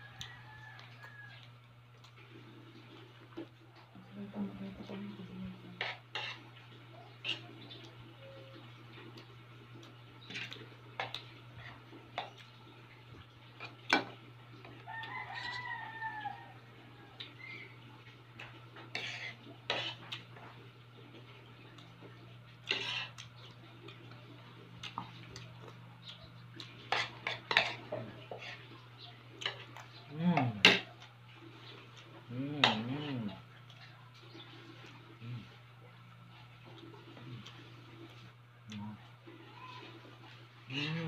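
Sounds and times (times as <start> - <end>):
rooster crowing: 0.0 - 1.5, 14.7 - 17.5.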